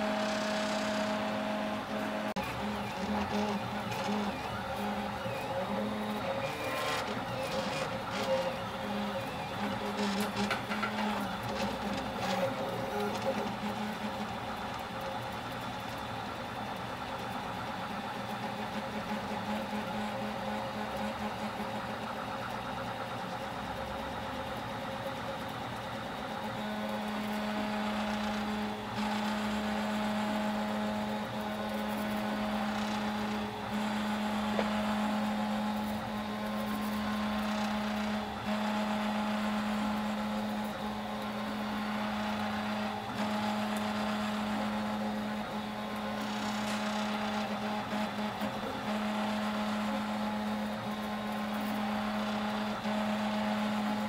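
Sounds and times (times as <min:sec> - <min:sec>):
stepper motors humming and whining: 0:00.0 - 0:54.0.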